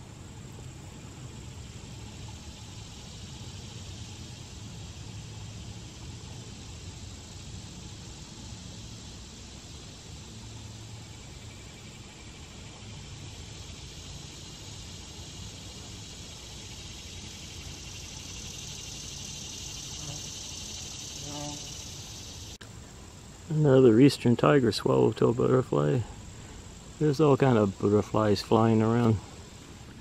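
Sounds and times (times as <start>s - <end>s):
insect chorus drone: 0.0s - 30.0s.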